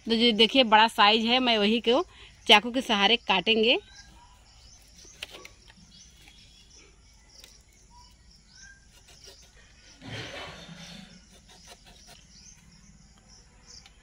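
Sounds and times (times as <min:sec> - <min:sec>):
bird chirps: 0:02.4 - 0:14.0
knife cutting banana stalk: 0:07.3 - 0:07.7, 0:08.7 - 0:09.6, 0:11.1 - 0:12.6.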